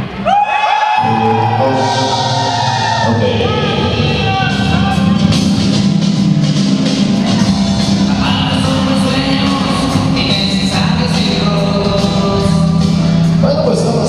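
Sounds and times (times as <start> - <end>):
loud dance music with singing: 0.8 - 14.0.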